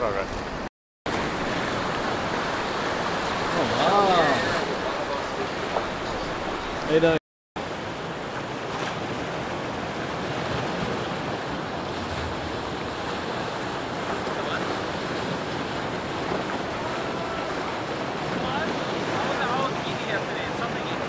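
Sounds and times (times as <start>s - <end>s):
surf washing against rocks: 0.0s - 21.0s.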